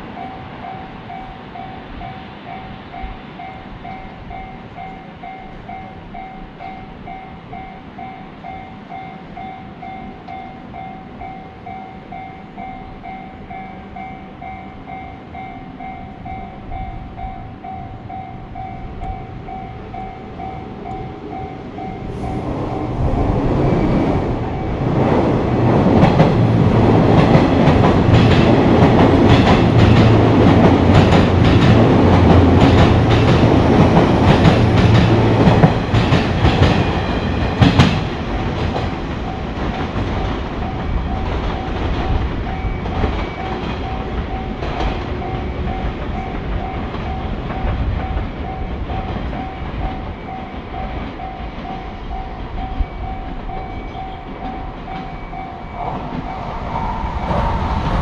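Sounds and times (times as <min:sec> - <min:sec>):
level-crossing warning bell: 0:00.0 - 0:58.0
train wheels clacking over rails: 0:18.6 - 0:58.0.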